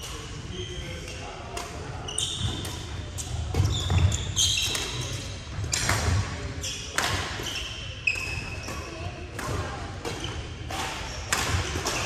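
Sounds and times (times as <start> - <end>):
sneaker squeaks on floor: 2.0 - 9.2
racket hitting shuttlecock: 2.4 - 12.0.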